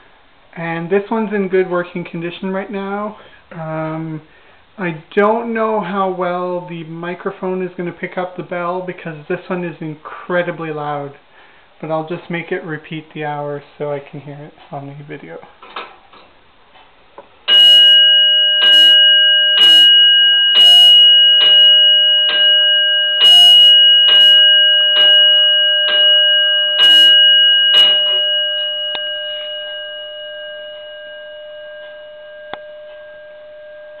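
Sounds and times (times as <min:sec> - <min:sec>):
clock bell striking: 0:17.5 - 0:34.0.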